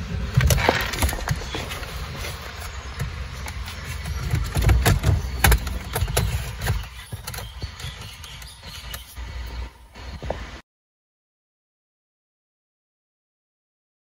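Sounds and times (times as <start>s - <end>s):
connectors clicking and rustling: 0.2s - 9.6s.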